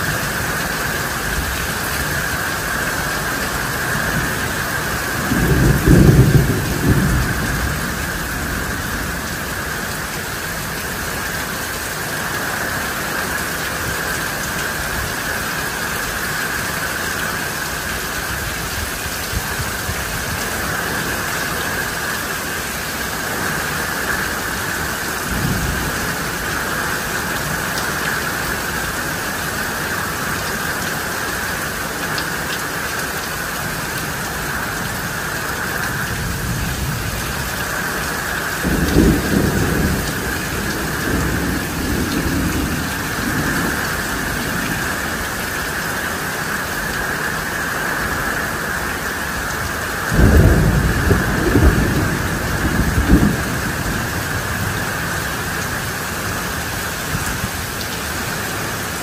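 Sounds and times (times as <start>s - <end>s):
thunder rumbling: 0.0s - 11.5s, 23.2s - 28.1s, 35.5s - 45.5s, 49.6s - 57.8s
heavy rain: 0.0s - 59.0s.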